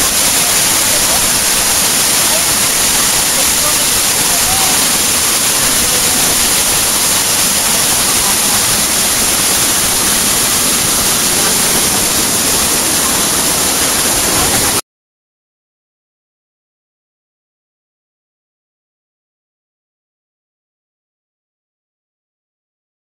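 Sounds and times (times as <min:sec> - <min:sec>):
waterfall rushing over rock: 0:00.0 - 0:14.8.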